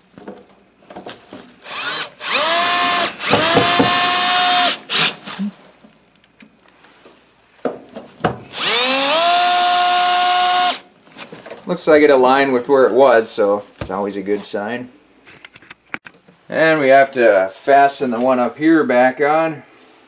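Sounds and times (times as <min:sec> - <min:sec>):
cordless drill whining: 0:01.6 - 0:05.6, 0:08.5 - 0:10.9.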